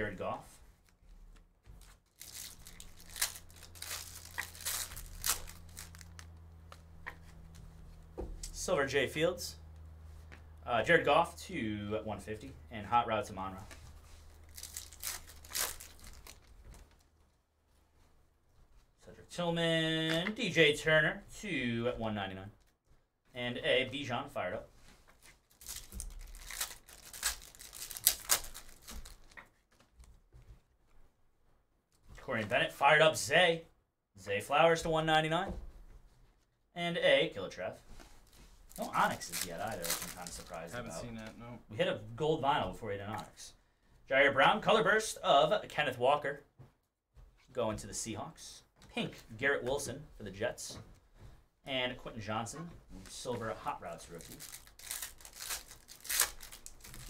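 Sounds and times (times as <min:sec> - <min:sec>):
low steady hum: 0:00.0 - 0:17.2, 0:36.8 - 0:46.0
foil wrapper tearing and crinkling: 0:01.8 - 0:06.4, 0:14.3 - 0:16.5, 0:25.4 - 0:29.4, 0:38.7 - 0:41.0, 0:54.1 - 0:57.0.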